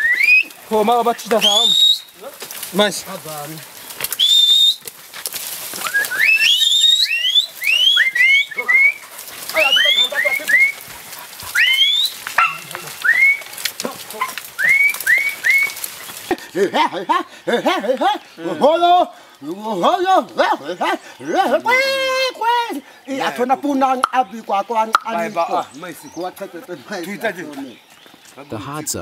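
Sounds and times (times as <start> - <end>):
short rising whistled notes: 4.2 - 4.8, 5.8 - 9.0, 13.0 - 13.5, 14.6 - 15.8.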